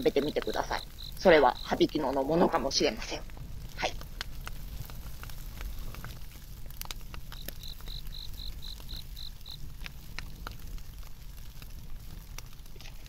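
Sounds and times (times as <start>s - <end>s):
insect chirping: 0.0s - 4.0s, 7.2s - 9.7s
wood fire crackling: 0.0s - 13.0s.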